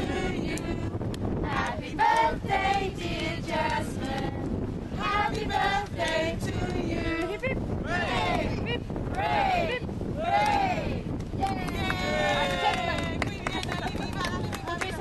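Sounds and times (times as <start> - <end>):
women and children singing: 0.0 - 4.4, 5.0 - 7.6
wind rumbling on microphone: 0.0 - 15.0.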